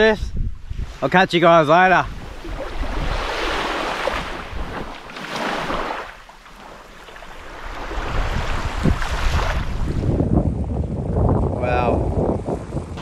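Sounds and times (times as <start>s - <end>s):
wind on microphone: 0.0s - 6.2s, 7.2s - 13.0s
waves washing on sandy beach: 0.7s - 10.2s.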